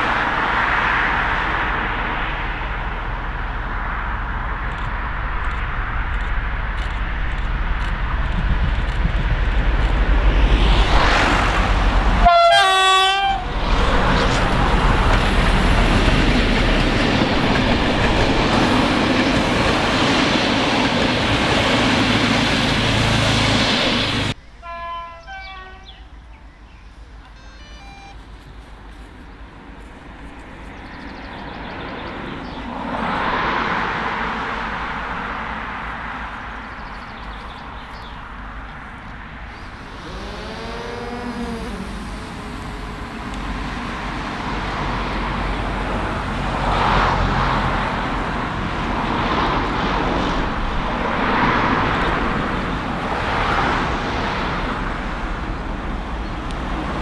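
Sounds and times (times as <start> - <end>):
rumble of passenger coaches: 0.0 - 57.0
traffic noise: 0.0 - 57.0
distant horn: 12.2 - 13.6, 24.6 - 26.2, 27.2 - 28.2, 39.5 - 43.9
locomotive horn: 12.2 - 13.6, 24.6 - 26.2, 27.3 - 28.2.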